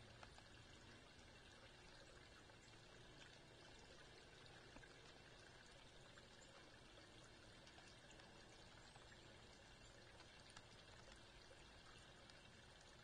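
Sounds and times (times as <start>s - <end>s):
tiny ticks: 0.0s - 1.0s, 4.6s - 5.5s, 6.5s - 13.0s
faint outdoor hiss: 0.0s - 13.0s.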